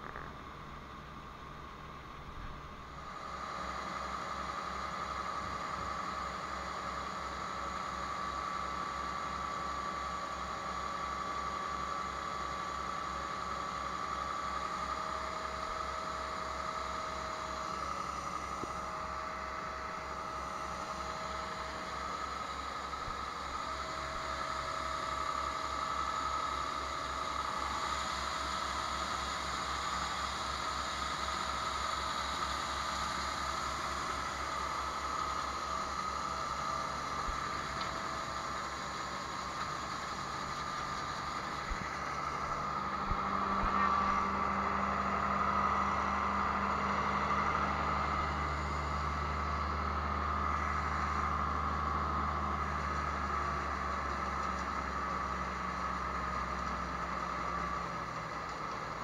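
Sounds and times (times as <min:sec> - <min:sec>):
high hum: 0:00.0 - 0:03.2, 0:41.3 - 0:46.8
tractor engine running: 0:00.0 - 0:59.0.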